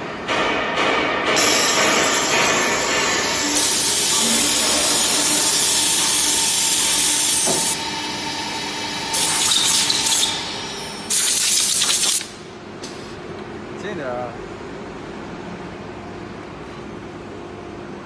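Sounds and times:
drilling machine hiss: 0:01.4 - 0:12.3.

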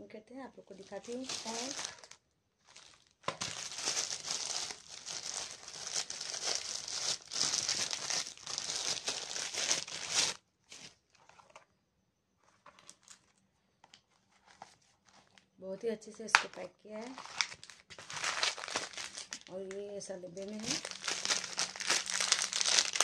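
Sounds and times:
plastic wrapping tearing and crinkling: 0:00.8 - 0:11.3, 0:17.0 - 0:19.7, 0:20.4 - 0:23.0.

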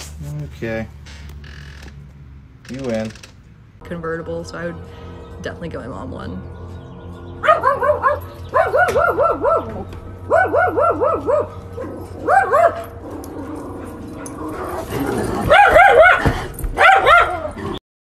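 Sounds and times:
dog barking: 0:07.4 - 0:13.0, 0:15.4 - 0:17.6.

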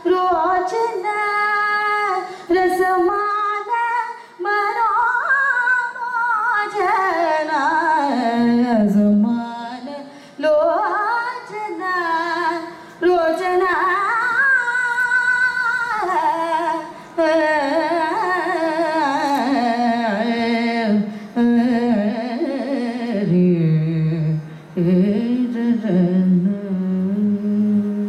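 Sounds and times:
woman singing ornamented melody: 0:00.0 - 0:28.0
singer breathing: 0:02.2 - 0:02.5, 0:04.1 - 0:04.4, 0:10.1 - 0:10.4, 0:12.7 - 0:13.0, 0:21.1 - 0:21.4, 0:24.4 - 0:24.8.

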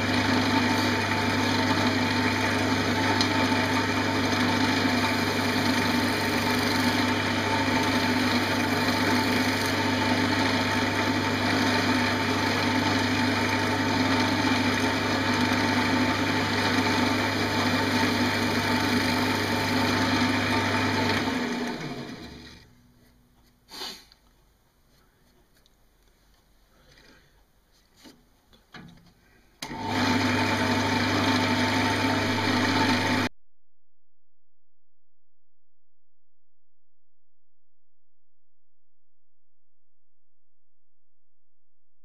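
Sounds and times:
wood lathe humming: 0:00.0 - 0:22.6, 0:29.6 - 0:33.3
gouge cutting wood: 0:00.1 - 0:21.2.

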